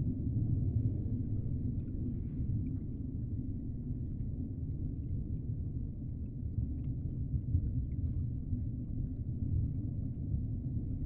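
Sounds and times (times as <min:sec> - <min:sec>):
faint ticks and clicks: 0:06.2 - 0:08.2.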